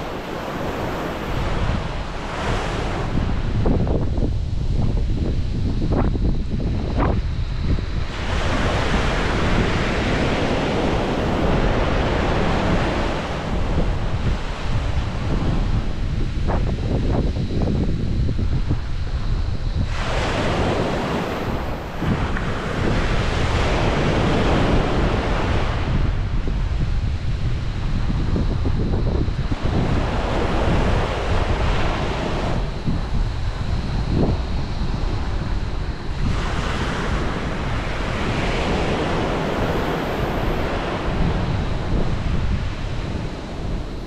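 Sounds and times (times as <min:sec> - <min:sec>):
sea waves breaking on shore: 0:00.0 - 0:03.9, 0:08.0 - 0:16.0, 0:19.8 - 0:26.8, 0:29.3 - 0:44.0
wind buffeting microphone: 0:00.0 - 0:44.0.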